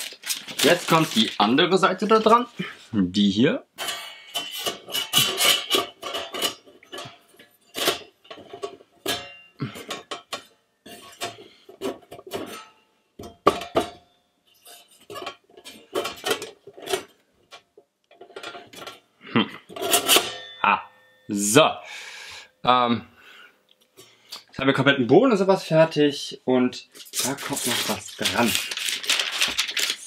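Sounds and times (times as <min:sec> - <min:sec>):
metal panels clinking and clattering: 0:03.8 - 0:14.0, 0:14.6 - 0:19.0, 0:19.7 - 0:20.6.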